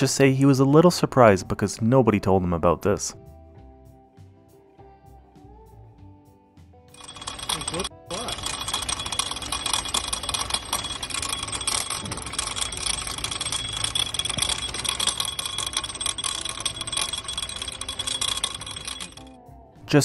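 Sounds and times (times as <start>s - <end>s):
rapid metallic rattling and clicking: 7.0s - 19.4s.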